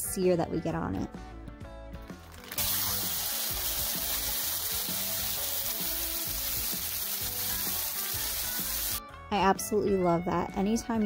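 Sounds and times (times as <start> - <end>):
chicken sizzling in hot skillet: 2.2 - 9.0.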